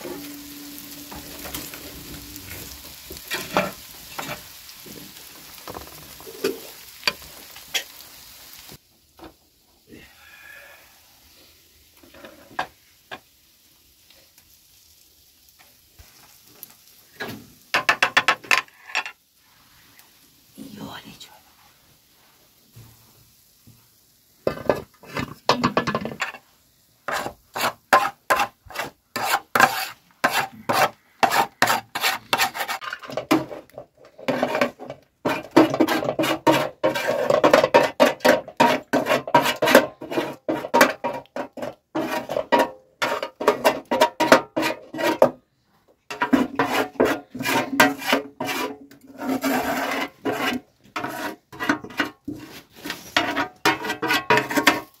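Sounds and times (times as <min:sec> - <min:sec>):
metal spoon scraping metal tray: 0:27.1 - 0:33.6, 0:34.2 - 0:45.3, 0:46.1 - 0:55.0.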